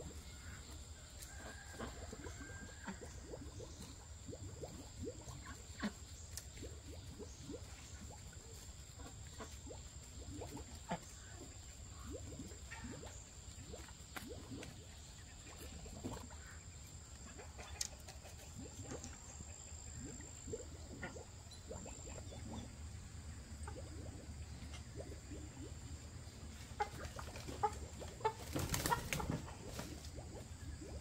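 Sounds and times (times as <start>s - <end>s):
chickens clucking: 5.4s - 20.1s, 23.6s - 30.8s.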